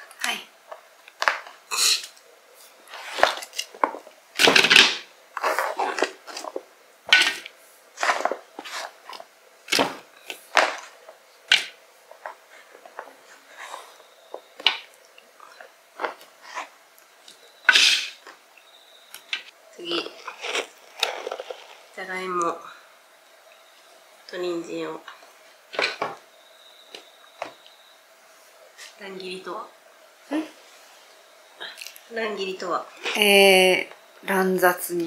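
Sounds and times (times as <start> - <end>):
onion layers rustling: 2.4 - 18.5, 19.2 - 23.1.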